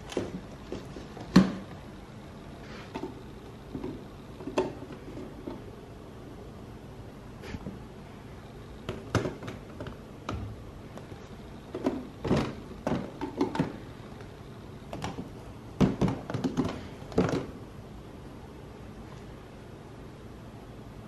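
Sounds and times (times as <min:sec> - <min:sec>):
plastic jars knocking in bin: 0:00.0 - 0:01.8, 0:02.9 - 0:05.6, 0:08.8 - 0:10.5, 0:11.7 - 0:13.8, 0:14.9 - 0:17.6.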